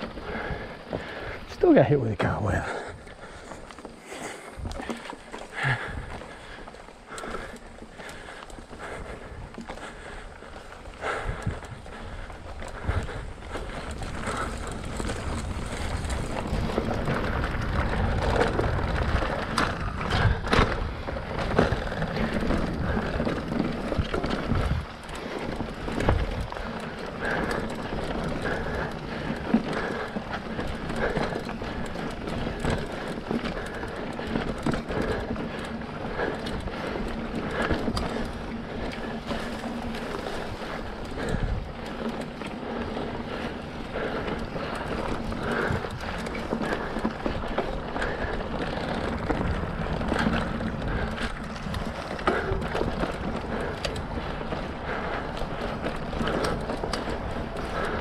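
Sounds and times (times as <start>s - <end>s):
bike knocking and rattling: 0.0s - 58.0s
bike tyres rolling on dirt: 0.0s - 58.0s.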